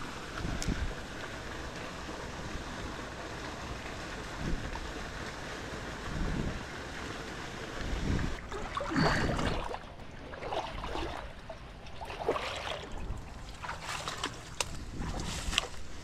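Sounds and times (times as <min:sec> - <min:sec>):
water sloshing and splashing: 0:07.1 - 0:16.0.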